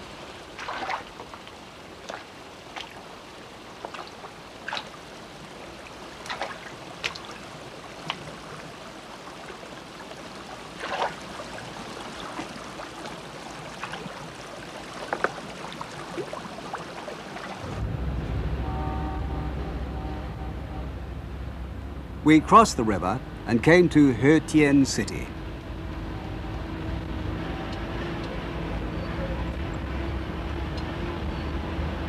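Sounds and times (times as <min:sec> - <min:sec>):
splashing footsteps in river: 0:00.0 - 0:17.8
water splashing and sloshing: 0:00.0 - 0:32.0
low vehicle engine hum: 0:17.6 - 0:32.0.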